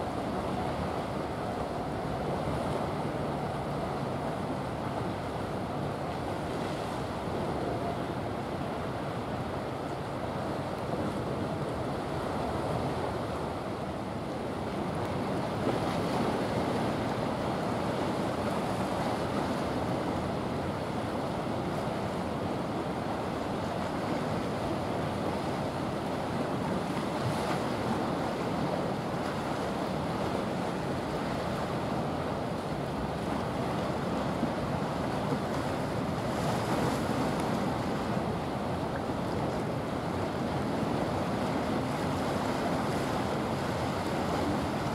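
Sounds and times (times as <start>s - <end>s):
sea water rushing: 0.0s - 44.9s
wind: 0.0s - 44.9s.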